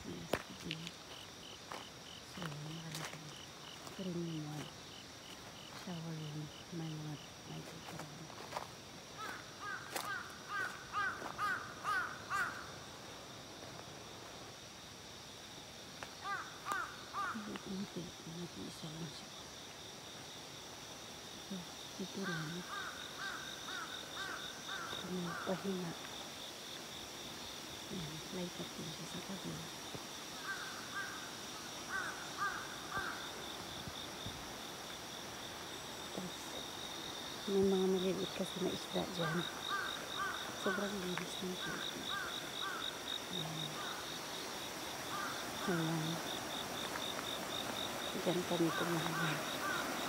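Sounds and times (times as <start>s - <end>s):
crow cawing: 9.2s - 12.8s, 16.2s - 17.4s, 22.2s - 25.5s, 30.4s - 31.3s, 31.9s - 33.4s, 39.3s - 40.8s, 41.7s - 43.0s, 43.8s - 44.1s, 45.0s - 45.7s, 48.6s - 50.0s.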